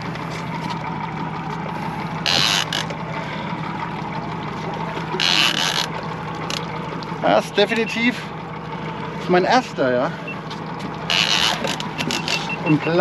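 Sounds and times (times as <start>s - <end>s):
outboard motors running: 0.0s - 13.0s.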